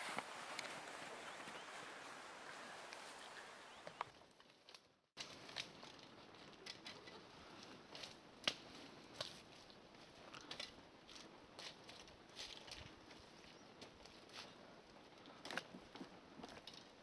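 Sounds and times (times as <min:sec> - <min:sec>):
footsteps through snow and brush: 0:00.0 - 0:04.1.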